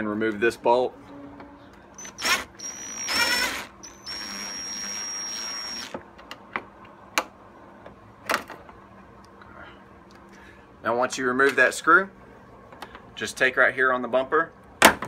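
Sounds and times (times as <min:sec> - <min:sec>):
cordless drill whining: 0:02.0 - 0:06.0.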